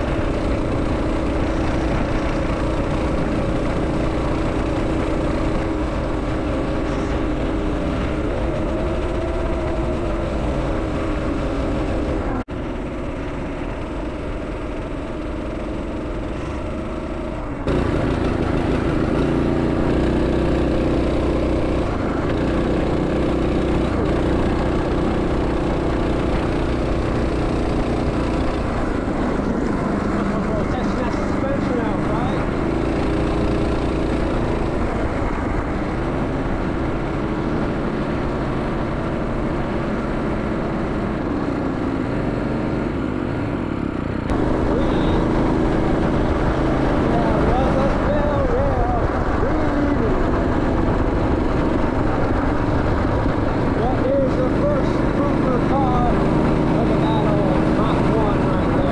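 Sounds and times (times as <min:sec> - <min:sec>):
small engine running: 0:00.0 - 0:58.9.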